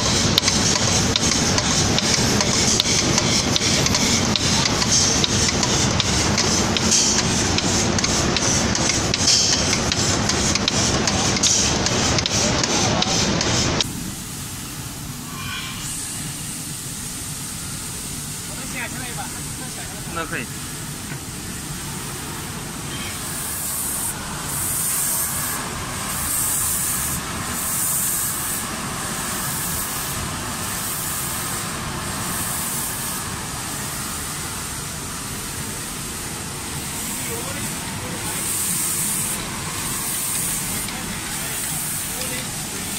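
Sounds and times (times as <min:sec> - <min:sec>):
machine mechanical clatter: 0:00.0 - 0:13.9
machine running noise: 0:00.0 - 0:42.9
spray hiss: 0:00.0 - 0:42.9.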